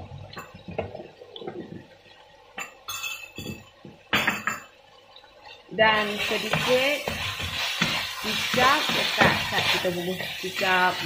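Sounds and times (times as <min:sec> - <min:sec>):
spatula scraping a wok: 0:06.2 - 0:10.9.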